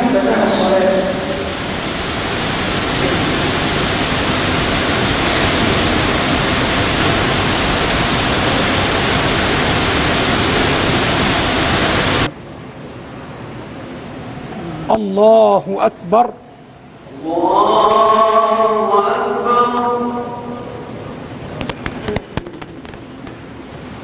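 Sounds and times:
loud steady hiss: 0.0s - 24.0s.

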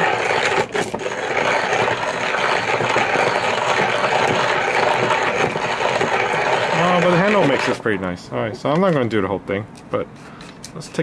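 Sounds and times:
hand coffee grinder crackling: 0.0s - 7.8s.

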